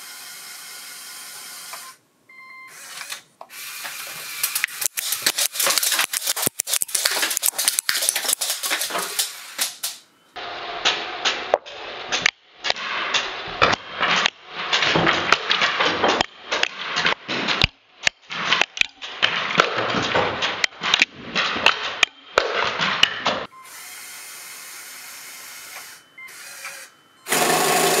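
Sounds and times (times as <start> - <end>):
toy motor whirring and clattering: 0.0 - 2.0, 2.7 - 10.0, 23.6 - 28.0
quiet steady noise: 0.2 - 3.5
sharp clicks of darts firing: 4.4 - 10.1.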